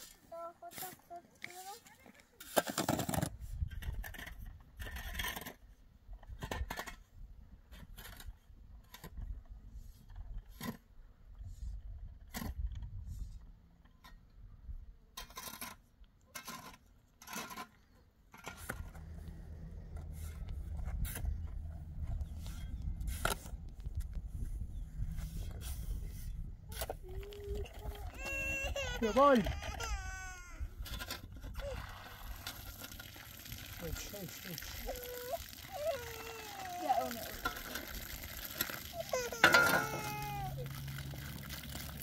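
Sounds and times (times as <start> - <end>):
hand tool scraping rock and gravel: 0.0 - 11.0, 15.2 - 23.7, 25.0 - 29.9, 30.8 - 42.0
steady low rumble: 18.8 - 27.6.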